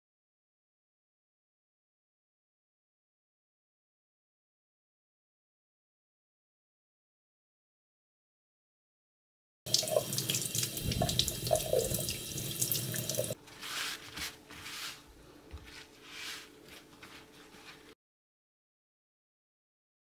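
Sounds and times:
tap water running into sink: 9.7s - 13.4s
paper towel swishing over fish: 13.3s - 18.0s.

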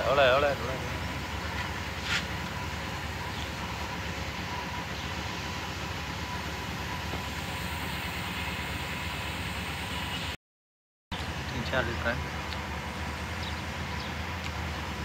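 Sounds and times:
faint steady whine: 0.0s - 10.4s
machinery rumbling: 0.0s - 10.4s, 11.1s - 15.0s.

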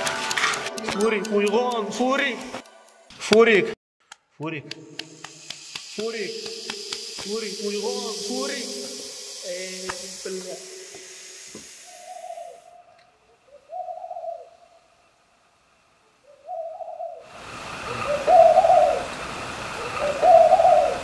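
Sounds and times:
steady hiss: 4.6s - 16.6s, 17.2s - 21.0s.

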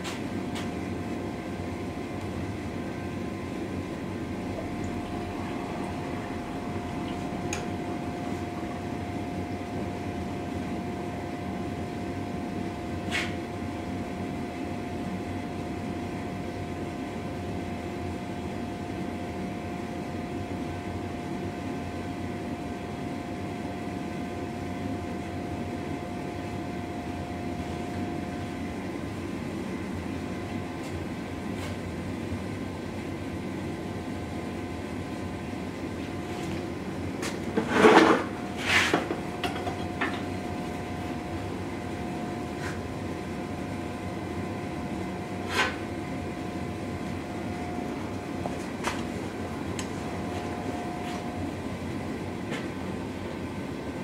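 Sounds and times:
steady whine: 0.0s - 31.4s, 35.6s - 54.0s
gas forge rushing: 2.5s - 10.5s.

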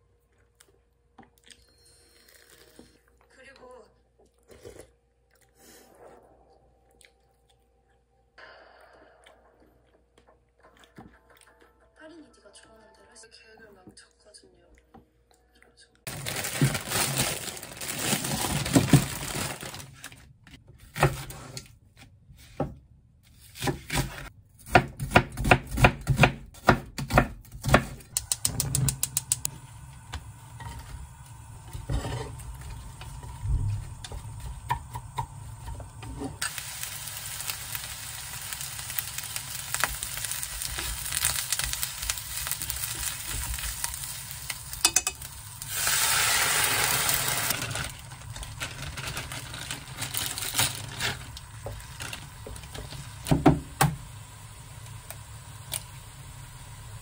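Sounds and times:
knife chopping on wooden board: 23.6s - 28.0s
vegetables sizzling in frying pan: 28.9s - 57.0s
chopsticks stirring in pan: 31.6s - 46.0s.

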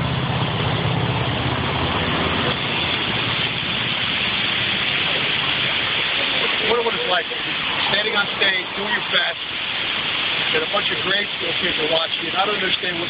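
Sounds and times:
motorcycle engine humming: 0.0s - 7.8s
steady rushing noise: 0.0s - 13.0s.

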